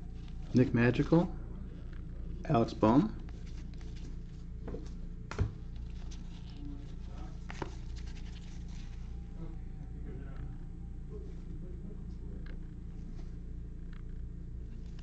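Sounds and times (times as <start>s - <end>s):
steady low hum: 0.0s - 15.0s
cards sliding and scratching: 5.8s - 9.0s.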